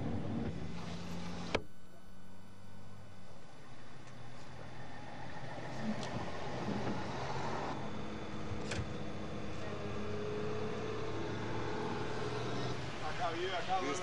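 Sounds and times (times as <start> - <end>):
car engine hum: 2.6 - 14.0
road noise: 3.8 - 14.0.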